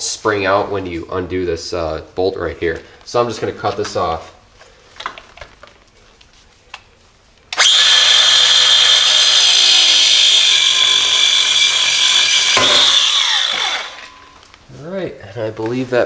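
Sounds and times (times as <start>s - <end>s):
angle grinder cutting steel: 7.6s - 14.3s.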